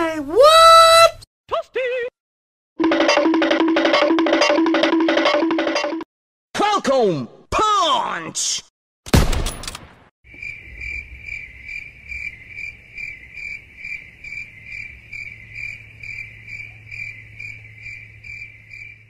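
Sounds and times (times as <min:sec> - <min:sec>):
rifle shot: 0:09.1 - 0:10.1
crickets chirping: 0:10.3 - 0:19.0.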